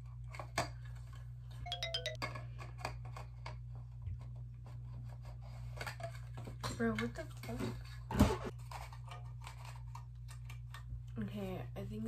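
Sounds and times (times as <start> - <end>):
two-note electronic chime: 1.7 - 2.2.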